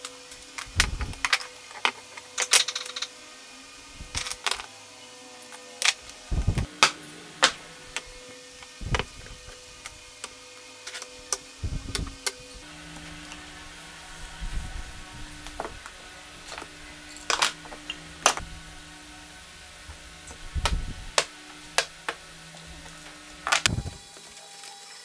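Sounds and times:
faint steady hum: 0:00.0 - 0:24.8
metal parts clicking on workbench: 0:00.6 - 0:03.1, 0:16.5 - 0:18.4.

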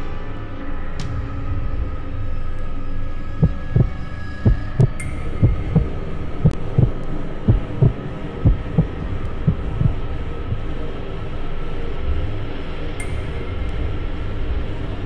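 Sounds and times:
heartbeat thumps: 0:03.4 - 0:10.6
steady low hum: 0:03.4 - 0:15.0.

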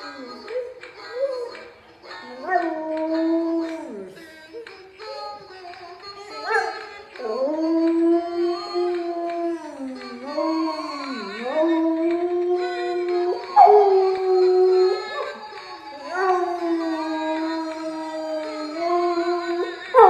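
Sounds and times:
dog howling: 0:02.3 - 0:04.1, 0:06.5 - 0:20.0.

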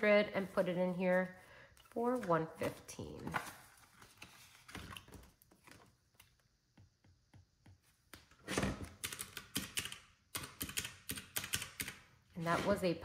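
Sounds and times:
paper rustling: 0:01.9 - 0:06.3.

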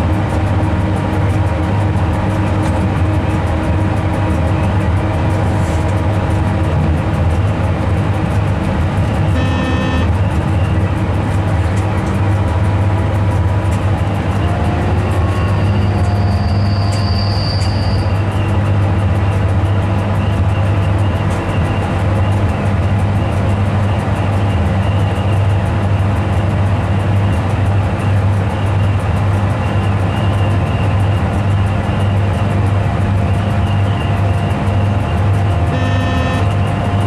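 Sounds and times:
train running hum and rumble: 0:00.0 - 0:37.0
brief pitched tone: 0:09.4 - 0:10.1, 0:35.7 - 0:36.6
high thin whistling tone: 0:15.2 - 0:18.2.

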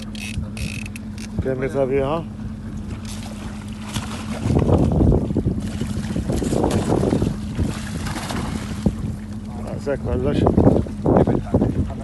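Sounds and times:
steady low hum: 0:00.0 - 0:12.0
fish thrashing and splashing: 0:02.6 - 0:09.4.

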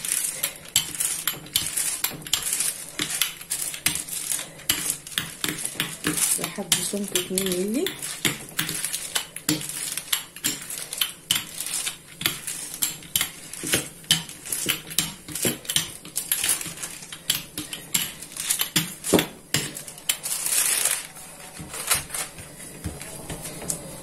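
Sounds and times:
paper crinkling: 0:00.0 - 0:12.8, 0:18.2 - 0:24.0
baking paper rustling: 0:00.0 - 0:24.0.

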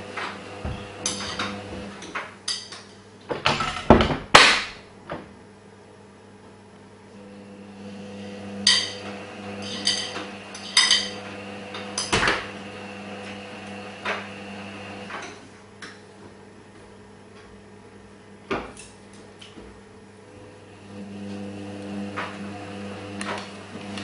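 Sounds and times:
knocks from tumble dryer: 0:00.2 - 0:01.9, 0:03.3 - 0:05.3.

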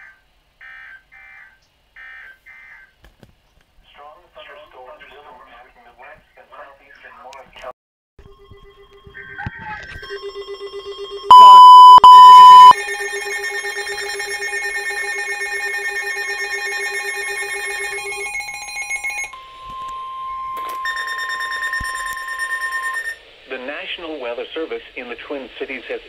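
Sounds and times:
alarm radios pulsing beeps: 0:08.3 - 0:23.2
steady alarm tone: 0:10.0 - 0:23.2
loud steady beeps: 0:10.1 - 0:23.2.

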